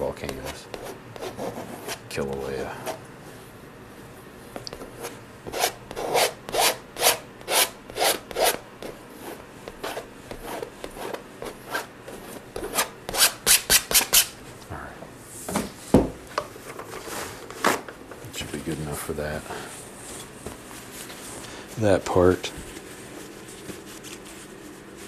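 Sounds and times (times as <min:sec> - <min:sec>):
palette knife scraping canvas: 0:04.7 - 0:14.3.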